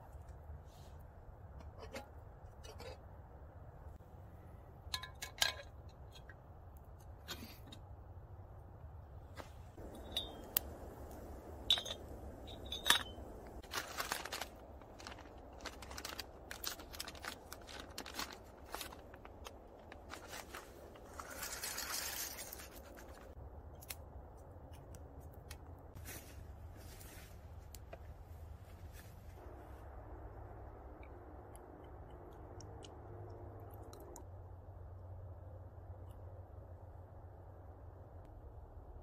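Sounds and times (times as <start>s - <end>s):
stove fire crackling: 9.2s - 23.9s
twigs snapping: 13.2s - 25.8s.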